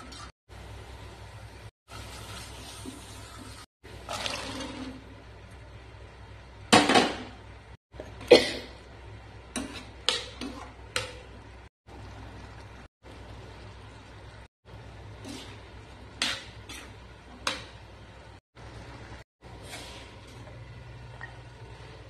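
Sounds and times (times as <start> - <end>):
spoon stirring and scraping pan: 9.4 - 11.7, 14.9 - 18.1.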